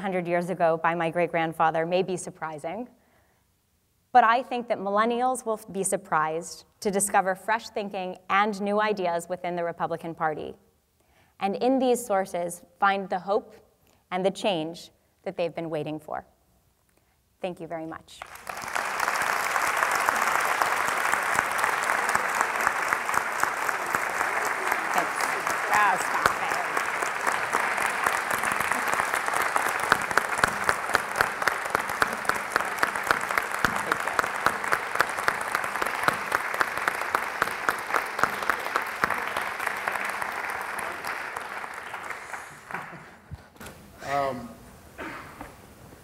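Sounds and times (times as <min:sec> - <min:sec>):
sharp nearby claps: 0:18.2 - 0:43.1
audience applauding: 0:18.2 - 0:43.2.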